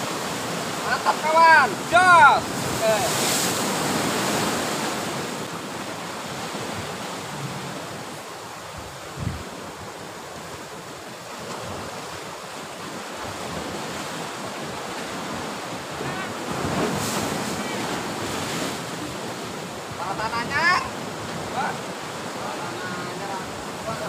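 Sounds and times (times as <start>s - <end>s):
sea surf washing in: 0.0s - 24.0s
wind: 0.0s - 24.0s.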